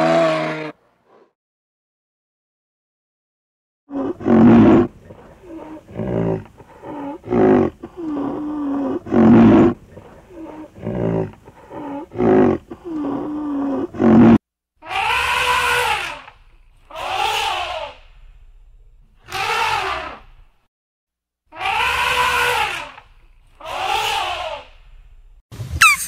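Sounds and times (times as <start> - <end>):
animal calling: 3.9 - 18.1, 19.3 - 20.4, 21.5 - 24.9, 25.8 - 26.0
higher animal calls: 14.8 - 18.0, 21.5 - 23.0, 23.6 - 24.8.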